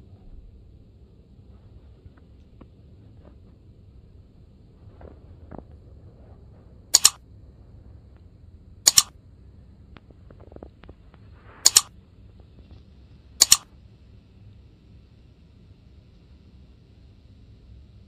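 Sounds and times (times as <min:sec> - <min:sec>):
mouse click sound effects: 0:07.0 - 0:07.2, 0:08.9 - 0:09.1, 0:11.6 - 0:11.9, 0:13.4 - 0:13.6.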